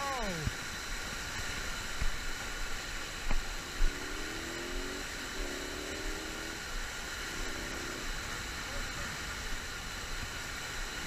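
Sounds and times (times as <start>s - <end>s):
water rushing over a dam: 0.0s - 3.8s.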